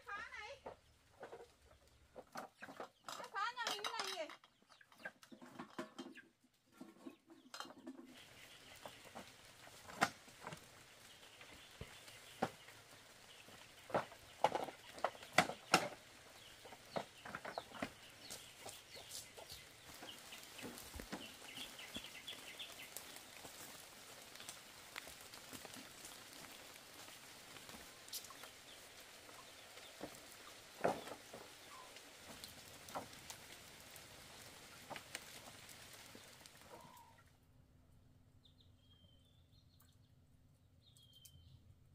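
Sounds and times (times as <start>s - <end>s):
chickens clucking: 0.6s - 37.3s.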